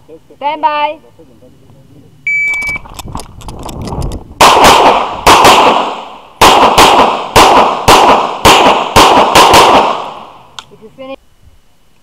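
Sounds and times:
handgun shots: 0:04.4 - 0:10.3
gunshot echo: 0:04.4 - 0:10.4.

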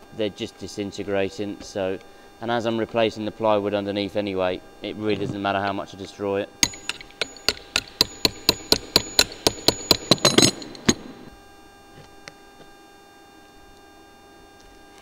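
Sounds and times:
faint steady hum: 0:00.0 - 0:14.7
metal hand tool knocking on screws: 0:06.6 - 0:11.3.

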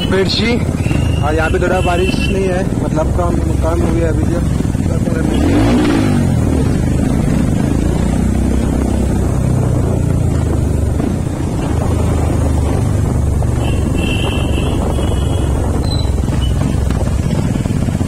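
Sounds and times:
motorcycle engine running: 0:00.0 - 0:18.0
wind noise on microphone: 0:00.0 - 0:18.0
vehicle horn: 0:00.8 - 0:02.4, 0:13.6 - 0:15.8.

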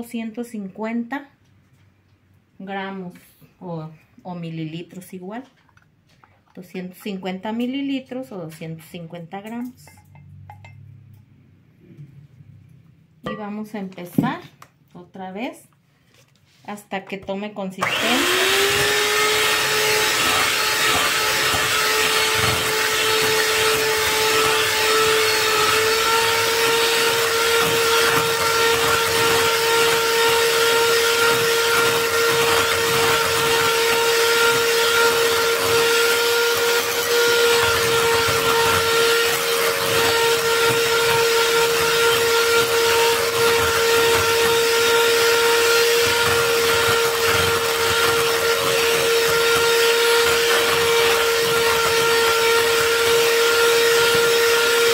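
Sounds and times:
electric hand mixer whine: 0:17.8 - 0:54.9.

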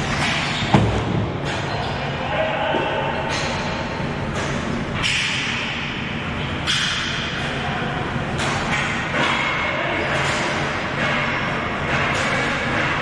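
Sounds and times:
sharp knocks of sticks and ball: 0:06.6 - 0:07.4.

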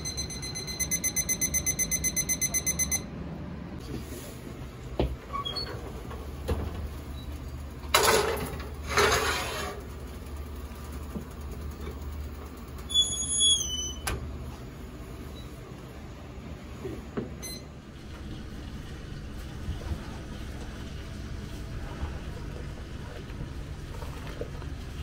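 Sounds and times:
low kitchen hum: 0:00.0 - 0:25.0
plate scraping across wire rack: 0:08.8 - 0:09.8.

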